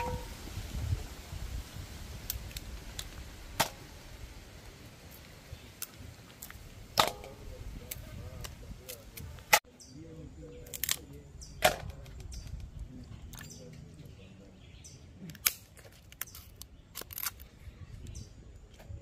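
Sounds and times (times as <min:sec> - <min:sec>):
crab shells cracking: 0:15.3 - 0:17.5.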